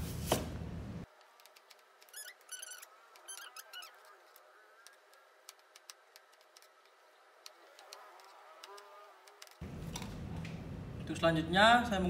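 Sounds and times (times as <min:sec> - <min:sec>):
short squeaks: 0:02.0 - 0:04.2.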